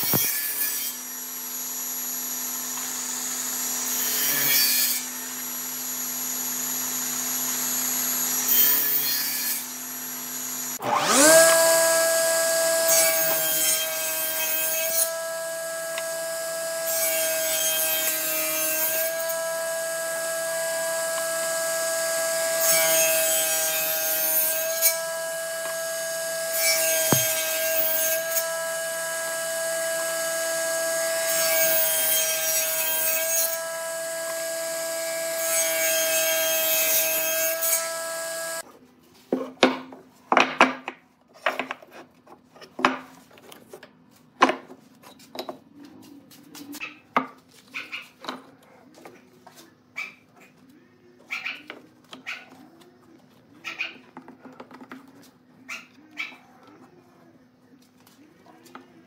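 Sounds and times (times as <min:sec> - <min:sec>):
saw blade cutting wood: 0:00.0 - 0:38.6
table saw whining: 0:00.0 - 0:38.6.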